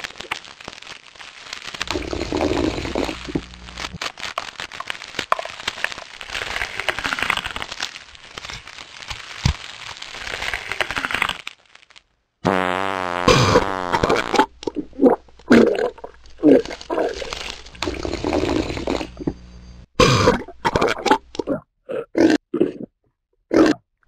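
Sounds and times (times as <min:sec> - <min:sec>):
crunching eating noises: 0:00.0 - 0:19.4, 0:20.0 - 0:22.9
low hum: 0:01.8 - 0:04.0, 0:15.3 - 0:20.0.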